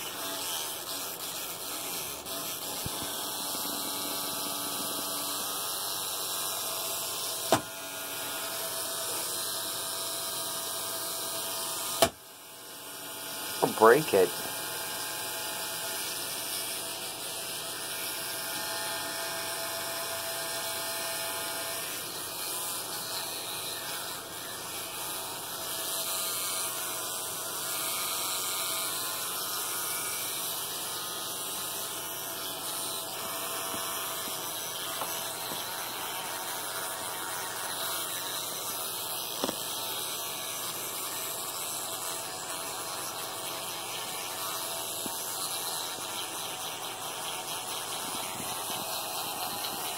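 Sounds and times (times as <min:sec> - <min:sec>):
electric toothbrush humming: 0:00.0 - 0:49.9.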